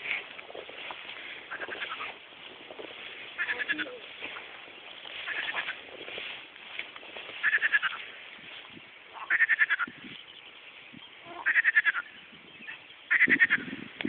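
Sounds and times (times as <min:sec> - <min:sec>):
frogs croaking: 0:00.4 - 0:08.3, 0:09.0 - 0:10.6, 0:11.2 - 0:13.9
faint background frog calls: 0:00.7 - 0:06.3, 0:07.2 - 0:08.3, 0:09.0 - 0:10.4, 0:11.2 - 0:13.9.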